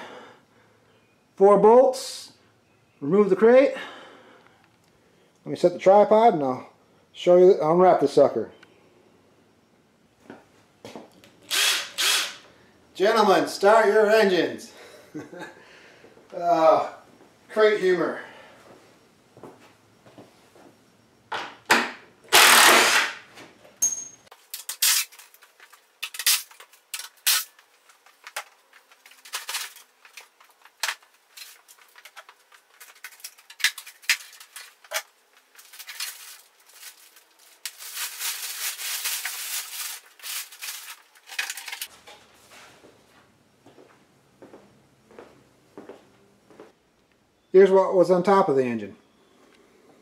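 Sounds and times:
cordless drill bursts: 11.5s - 12.5s, 22.3s - 23.2s
plastic wrap rustling: 24.4s - 41.9s.

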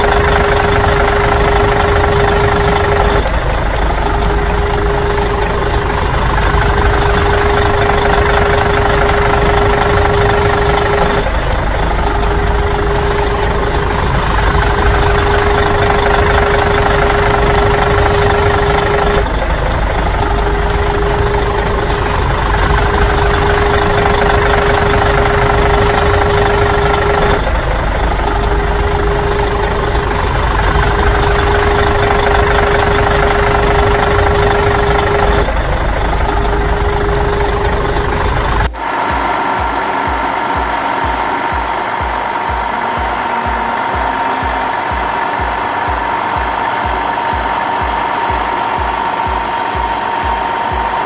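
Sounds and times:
engine idling: 0.0s - 51.0s.

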